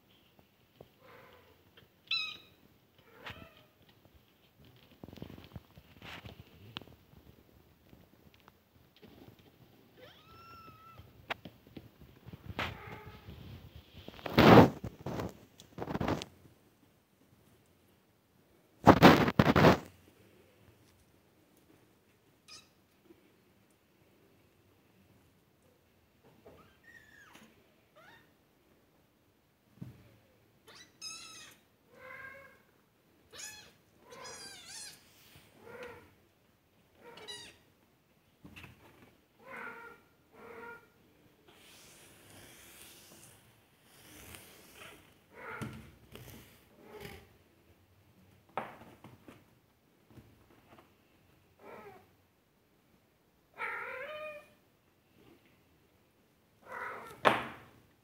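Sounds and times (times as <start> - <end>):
kittens meowing: 33.3 - 36.1.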